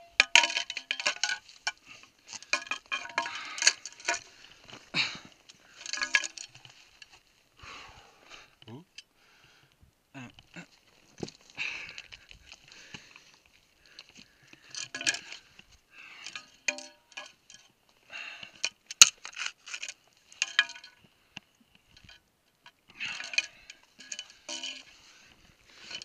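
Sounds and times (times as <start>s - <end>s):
metallic rings: 16.3s - 17.7s, 23.1s - 24.9s.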